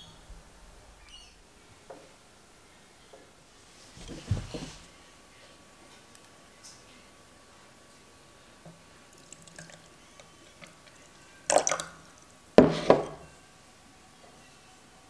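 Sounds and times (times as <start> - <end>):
rice wine pouring into glass: 11.4 - 12.0.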